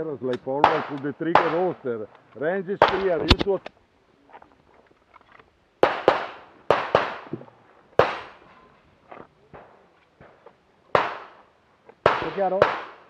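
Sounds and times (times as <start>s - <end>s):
pistol shots echoing: 0.4s - 1.8s, 2.8s - 3.4s, 5.8s - 7.3s, 8.0s - 8.4s, 9.5s - 13.0s.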